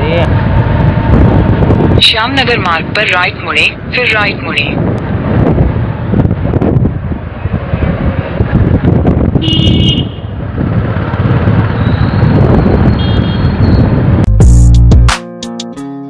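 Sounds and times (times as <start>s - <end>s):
wind buffeting microphone: 0.0s - 14.3s
road noise: 0.0s - 15.1s
vehicle horn: 9.4s - 10.3s, 13.0s - 13.6s
music: 14.3s - 16.0s.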